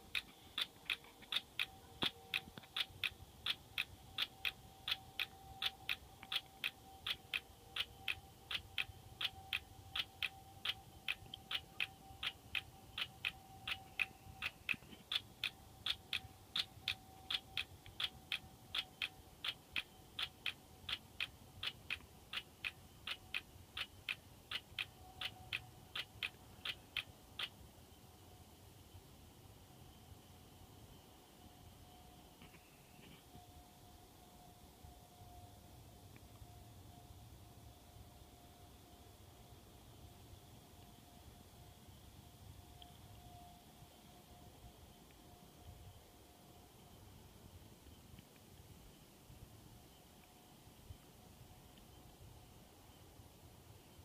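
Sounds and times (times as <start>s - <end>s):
cricket chirping: 0.0s - 33.6s.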